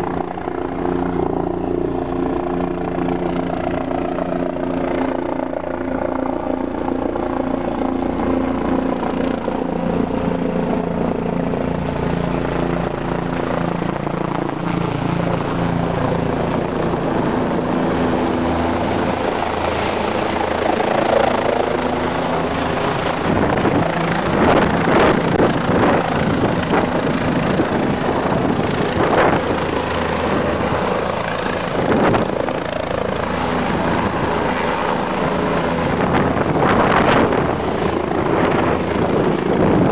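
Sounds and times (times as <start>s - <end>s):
helicopter rotor thudding: 16.2s - 39.9s.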